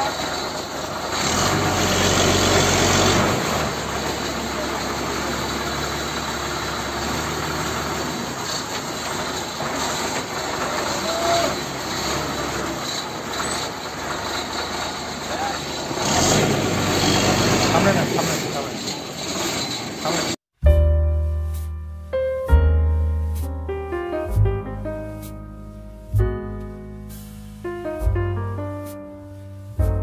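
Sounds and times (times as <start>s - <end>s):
engine humming: 0.0s - 20.4s.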